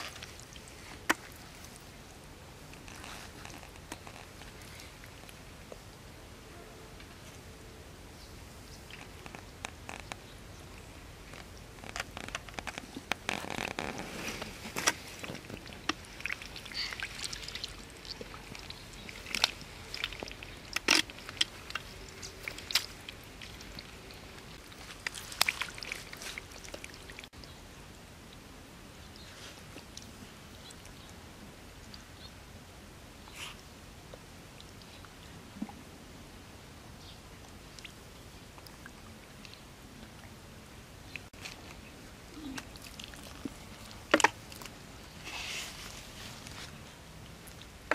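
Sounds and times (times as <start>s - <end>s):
faint steady hiss: 0.0s - 47.9s
hands squelching through wet mud: 12.0s - 27.4s, 42.4s - 47.9s.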